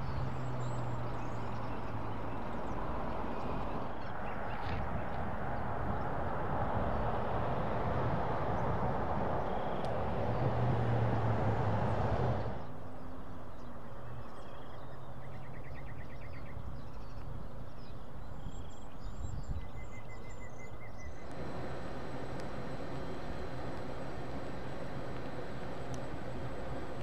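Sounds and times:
small birds chirping and trilling: 0.0s - 6.2s, 11.9s - 27.0s
steady rushing noise: 2.6s - 12.7s, 21.2s - 27.0s.

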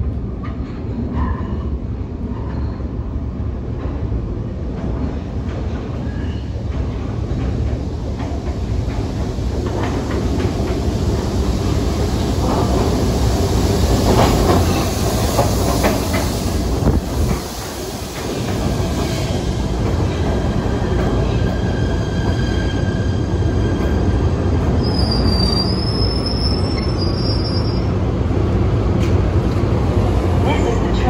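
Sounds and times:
train wheels rumbling on rail: 0.0s - 31.0s
high squeal: 24.8s - 27.9s.

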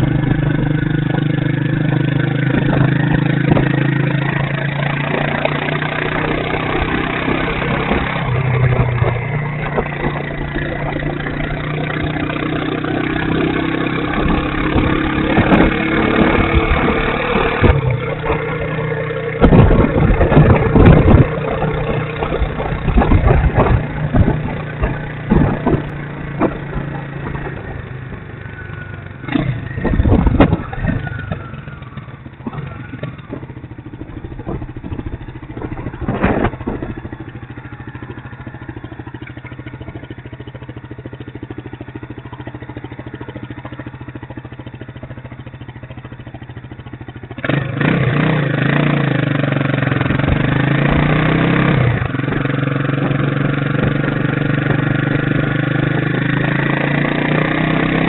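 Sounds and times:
motorcycle engine revving through gears: 0.0s - 58.0s
wind gusts buffeting microphone: 14.0s - 18.8s, 19.4s - 28.3s, 29.3s - 41.2s, 49.9s - 56.8s.

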